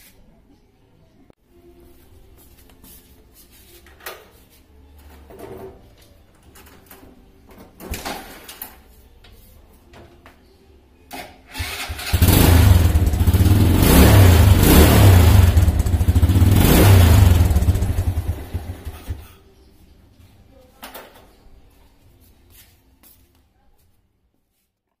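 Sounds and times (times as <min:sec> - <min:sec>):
motorcycle kick-start: 0:11.1 - 0:19.4
small motorcycle engine running: 0:11.9 - 0:19.3.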